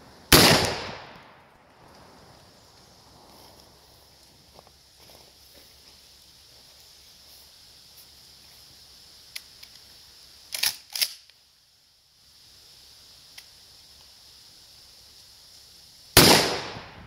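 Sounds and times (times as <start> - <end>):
faint click: 13.3 - 14.1.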